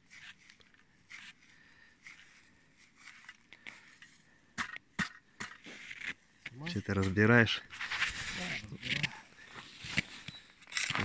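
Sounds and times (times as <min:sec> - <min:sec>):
ice auger scraping and crunching: 0:02.0 - 0:04.2, 0:05.5 - 0:11.0.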